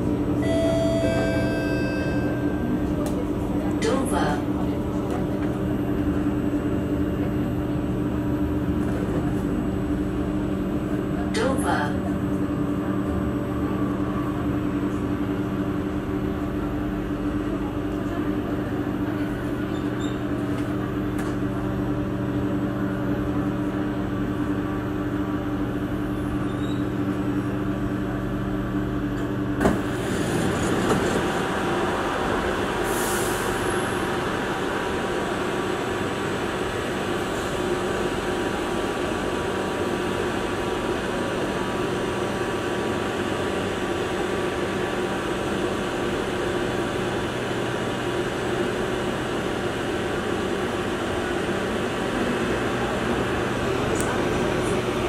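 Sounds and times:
train electrical hum: 0.0s - 55.0s
click: 3.0s - 3.2s, 53.9s - 54.2s.

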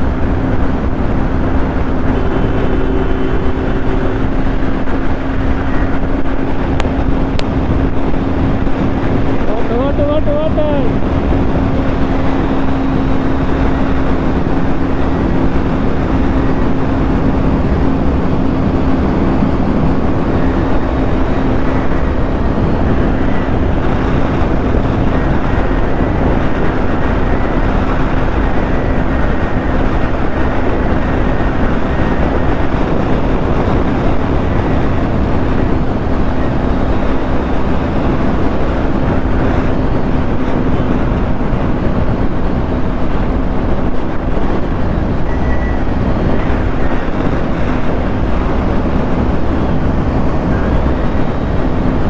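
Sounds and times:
motorcycle engine hum: 0.0s - 52.0s
wind rush over microphone: 0.0s - 52.0s.

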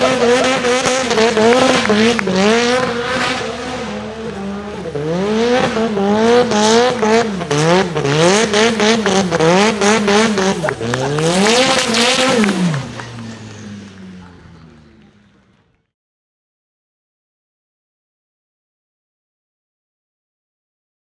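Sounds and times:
turbocharged car engine revving: 0.0s - 15.8s.

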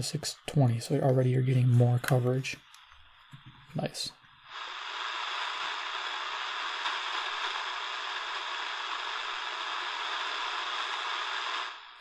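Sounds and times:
shortwave radio static hiss: 0.0s - 12.0s.

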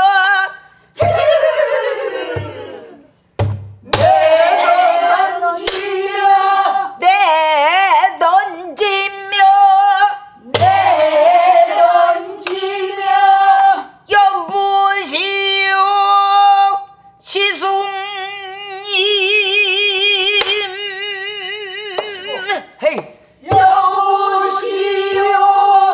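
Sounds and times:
woman singing with vibrato: 0.0s - 1.4s, 6.2s - 12.0s
barrel drum thumps: 3.4s - 4.4s, 10.6s - 11.2s, 23.5s - 23.8s.

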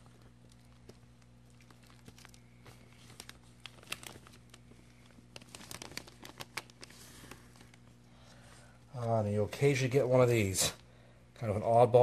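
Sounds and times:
plastic bag crinkling: 0.0s - 8.0s
steady low hum: 0.0s - 12.0s.

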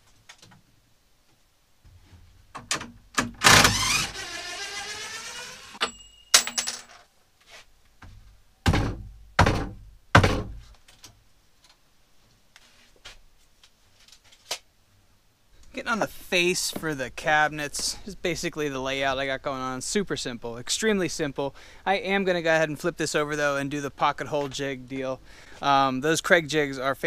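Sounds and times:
loud knocks: 8.6s - 10.6s.

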